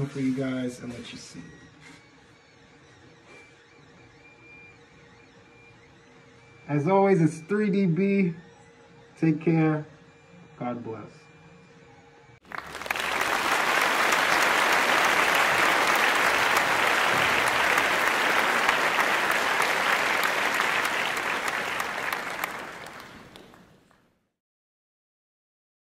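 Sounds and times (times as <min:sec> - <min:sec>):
crowd applauding: 0:12.4 - 0:24.0.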